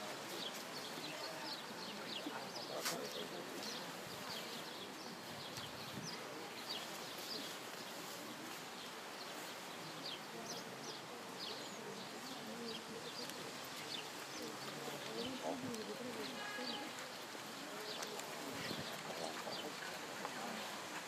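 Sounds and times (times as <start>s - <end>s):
small birds chirping: 0.0s - 21.0s
steady outdoor hiss: 0.0s - 21.0s.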